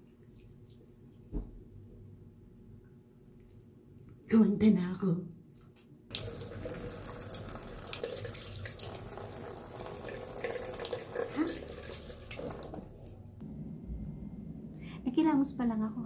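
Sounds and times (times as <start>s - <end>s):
tap water running into sink: 6.1s - 13.2s
water splashing on face: 6.1s - 13.2s.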